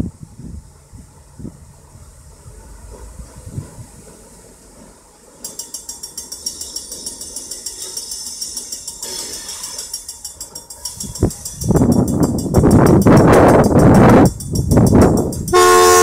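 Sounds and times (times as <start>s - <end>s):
crossing warning bell ringing: 5.4s - 16.0s
locomotive horn: 15.5s - 16.0s.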